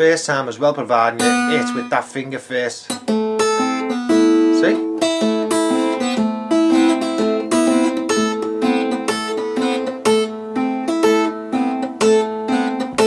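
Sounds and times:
fingerpicked guitar: 0:00.4 - 0:13.0.

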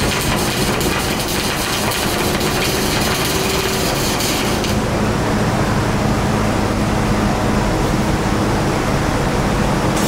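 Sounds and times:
welding arc crackling: 0:00.0 - 0:04.9
steady low hum: 0:00.0 - 0:10.0.

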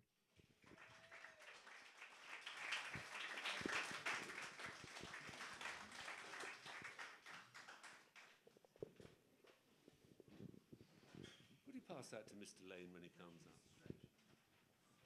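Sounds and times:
small audience clapping: 0:00.5 - 0:08.6.

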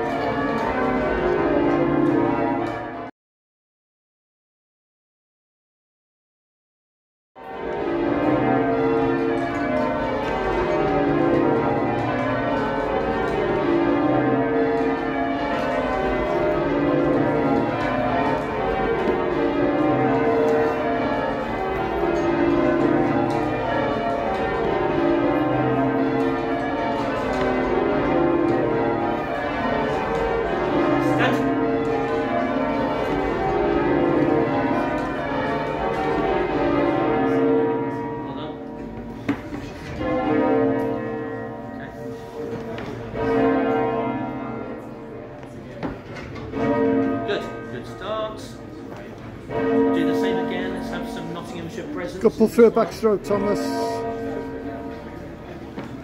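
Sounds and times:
church bells ringing: 0:00.0 - 0:03.1, 0:07.4 - 0:56.0.

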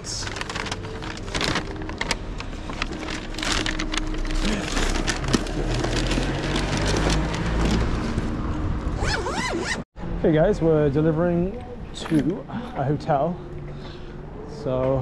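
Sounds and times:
paper bag crinkling: 0:00.0 - 0:08.3.

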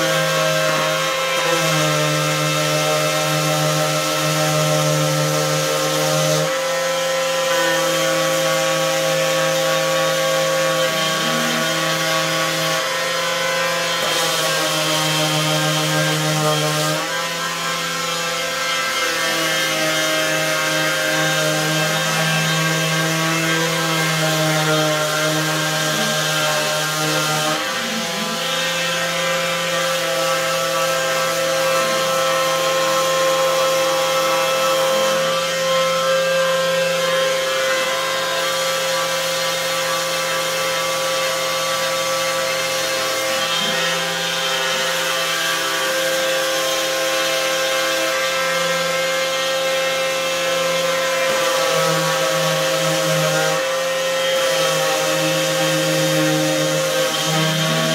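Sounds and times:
orbital sander on wood: 0:00.0 - 0:57.9.

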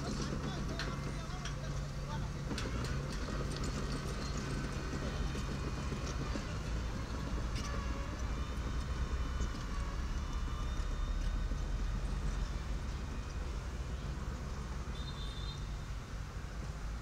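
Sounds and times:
metallic clanks and rattles: 0:00.0 - 0:08.3
bulldozer diesel engine running: 0:00.0 - 0:17.0.

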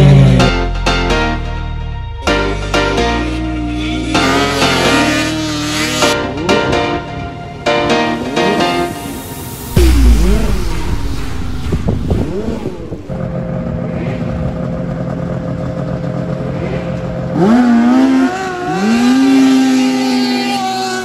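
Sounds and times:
snowmobile engine revving sharply: 0:04.1 - 0:06.2.

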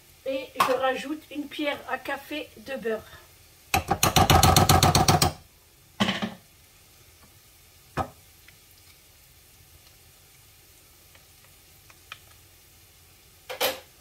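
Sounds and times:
spoon knocking on frying pan: 0:03.7 - 0:05.4, 0:08.0 - 0:08.2.

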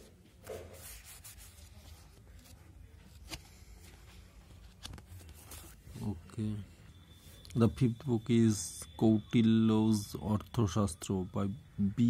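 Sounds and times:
book pages rustling: 0:00.4 - 0:05.9.

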